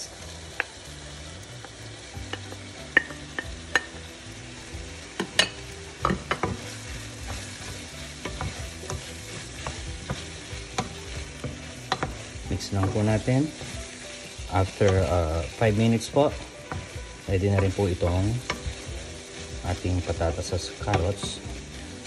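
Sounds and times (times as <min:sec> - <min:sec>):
meat sizzling in a frying pan: 0:00.0 - 0:22.0.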